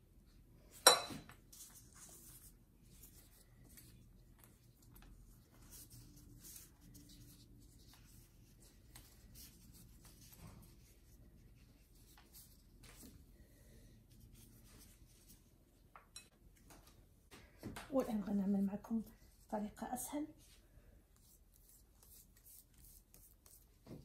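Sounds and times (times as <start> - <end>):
plastic gloves rustling: 1.4 - 15.9, 20.3 - 24.0.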